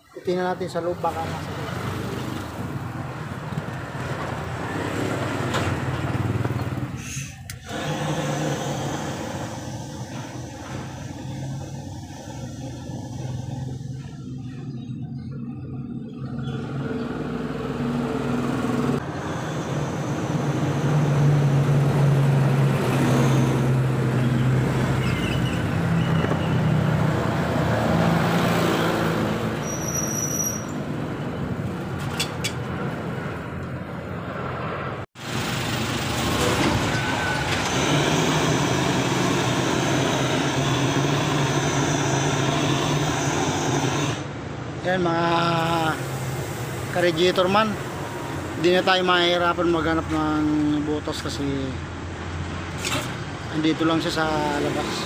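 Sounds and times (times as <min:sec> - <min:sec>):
gas torch roaring: 0:02.2 - 0:14.2, 0:17.3 - 0:29.7, 0:35.2 - 0:44.4.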